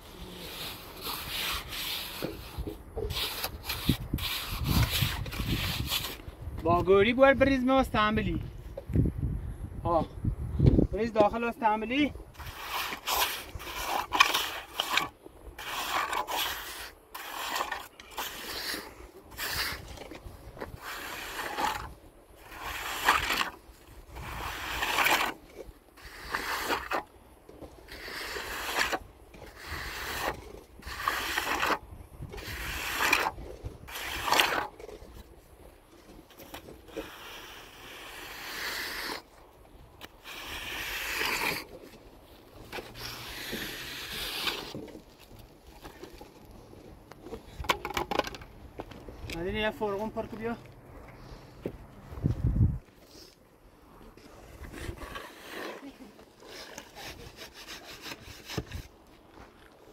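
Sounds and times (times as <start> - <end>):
shovel scraping cement: 0.0 - 6.3, 12.3 - 35.4, 36.1 - 39.4, 40.0 - 46.5, 54.2 - 59.0.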